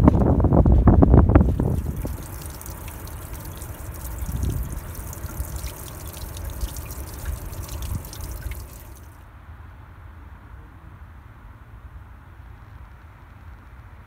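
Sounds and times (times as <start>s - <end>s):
water dripping onto rocks: 1.4s - 9.1s.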